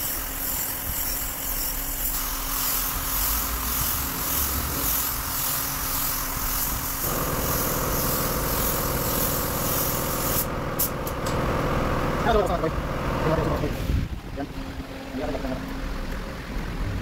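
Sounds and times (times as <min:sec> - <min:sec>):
paint spray gun hissing: 0:00.0 - 0:11.4
steady machine hum: 0:00.0 - 0:16.6.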